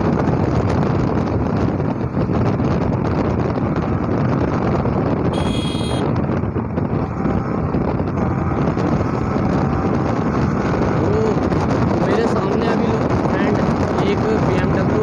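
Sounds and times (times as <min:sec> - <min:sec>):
wind buffeting microphone: 0:00.0 - 0:15.0
motorcycle engine running: 0:00.3 - 0:12.0
short high-pitched beep: 0:05.4 - 0:06.0.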